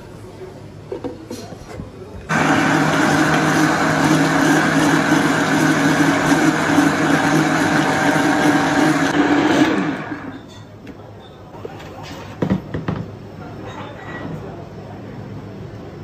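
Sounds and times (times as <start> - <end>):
blender motor running: 2.3 - 10.4.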